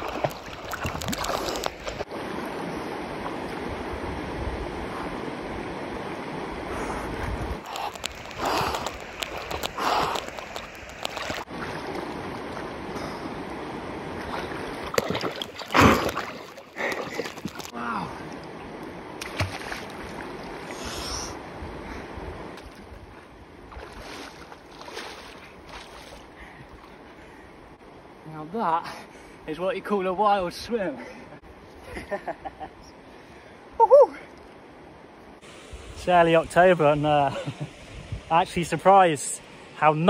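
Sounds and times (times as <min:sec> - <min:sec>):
water splashing from swimming: 0:00.0 - 0:02.4, 0:07.6 - 0:13.5, 0:14.1 - 0:18.6, 0:19.2 - 0:20.8, 0:22.6 - 0:27.0
stream rushing: 0:00.0 - 0:31.8, 0:32.9 - 0:40.0.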